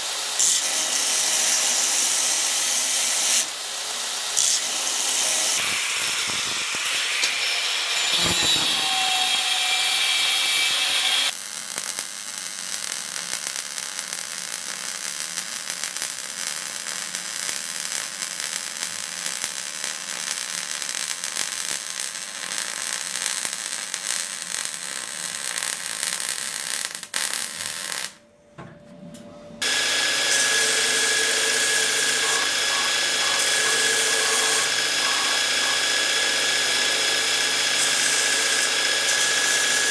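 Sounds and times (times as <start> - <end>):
electric arc welding crackle: 0.0 - 28.2, 29.6 - 39.9
belt grinder grinding steel: 4.3 - 11.3, 29.6 - 39.9
grinder motor hum: 29.6 - 39.9.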